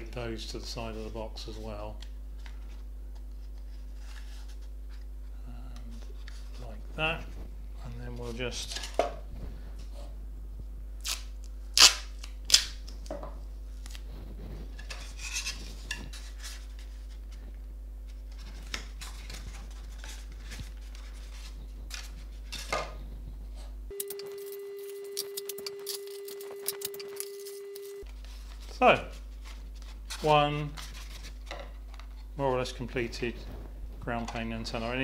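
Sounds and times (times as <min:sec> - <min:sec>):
tape torn off roll: 0:11.0 - 0:13.1
rustling and scraping on box: 0:14.2 - 0:17.2
faint steady tone: 0:23.9 - 0:28.0.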